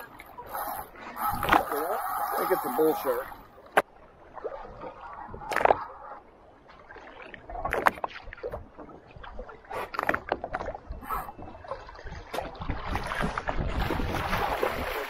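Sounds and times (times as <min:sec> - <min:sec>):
water lapping beside boat: 0:00.0 - 0:15.0.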